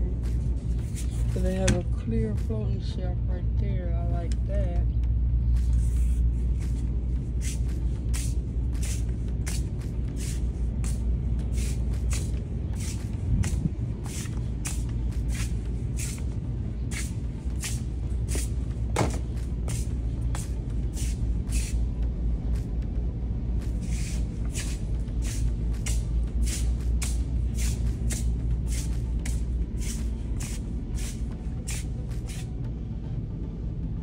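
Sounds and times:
soft footsteps and rustles: 0.0s - 2.7s, 4.2s - 21.8s
steady low rumble: 0.0s - 34.0s.

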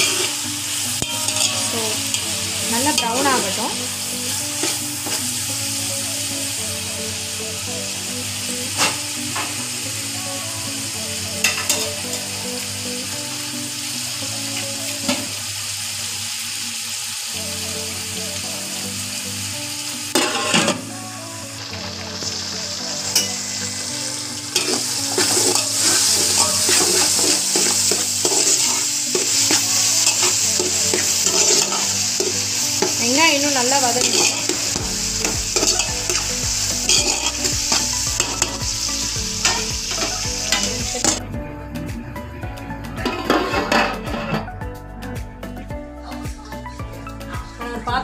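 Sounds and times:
onions sizzling in hot oil: 0.0s - 41.2s
spatula clinking against pot: 35.2s - 36.2s.

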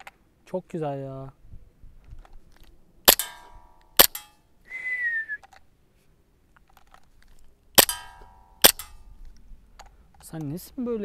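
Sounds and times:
airsoft pistol shots: 3.1s - 4.3s, 7.8s - 9.0s
brief metallic ring: 3.2s - 4.4s, 7.8s - 9.1s
short falling whistle: 4.7s - 5.5s.

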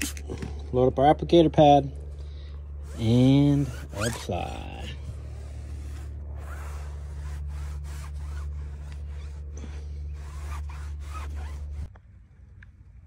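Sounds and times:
low steady hum: 0.0s - 13.0s
scratchy rubbing on tire: 2.8s - 11.9s.

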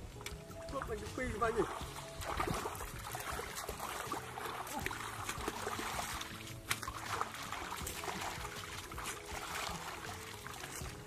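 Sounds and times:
hands splashing in muddy water: 1.5s - 11.0s
sharp slap on water: 2.2s - 8.3s.

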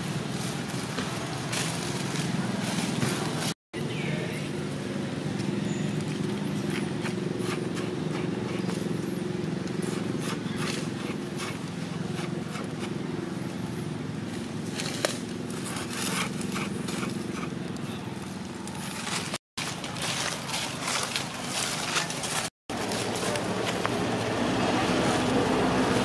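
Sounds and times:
dry leaves rustling and crackling: 0.0s - 3.6s, 14.0s - 17.4s, 18.1s - 26.0s
low engine-like hum: 0.0s - 26.0s.

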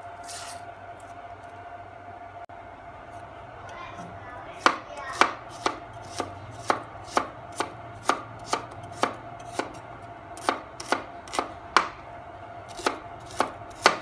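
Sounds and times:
knife chopping on wooden board: 4.6s - 9.8s, 10.4s - 12.0s, 12.7s - 14.0s.

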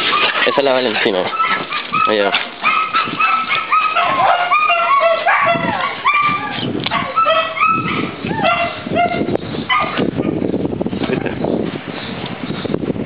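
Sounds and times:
dog yipping and whining: 0.0s - 10.4s.

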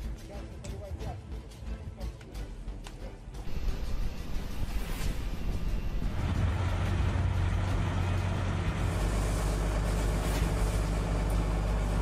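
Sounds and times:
fire engine droning: 5.2s - 12.0s.

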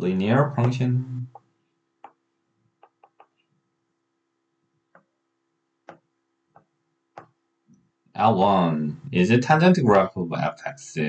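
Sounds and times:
faint computer clicks and taps: 2.8s - 3.4s.

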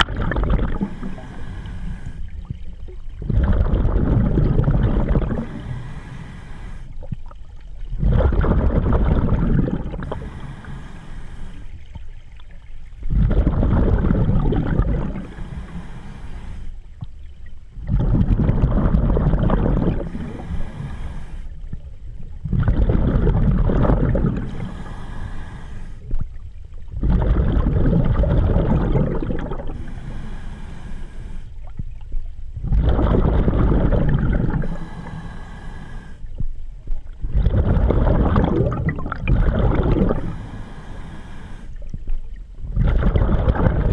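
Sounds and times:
bubbling regulator exhale: 0.0s - 12.1s, 13.0s - 43.9s
regulator inhale hiss: 0.6s - 2.7s, 5.2s - 7.1s, 9.9s - 12.0s, 15.0s - 17.0s, 20.0s - 21.8s, 24.2s - 26.3s, 29.4s - 31.8s, 34.4s - 36.5s, 39.9s - 42.0s.

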